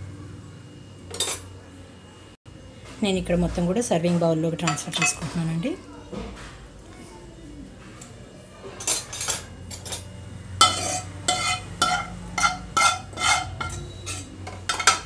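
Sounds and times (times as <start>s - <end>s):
metal spoon clinking on cookware: 1.1s - 1.5s, 4.6s - 5.3s, 8.8s - 15.0s.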